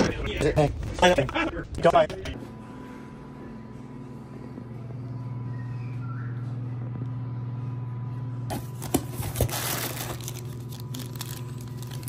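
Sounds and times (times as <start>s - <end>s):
steady low hum: 0.0s - 12.0s
bubble wrap crinkling and rustling: 8.8s - 12.0s.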